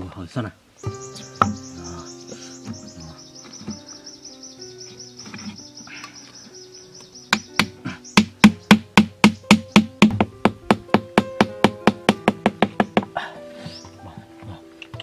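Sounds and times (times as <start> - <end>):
high chirp: 0.8 - 10.0.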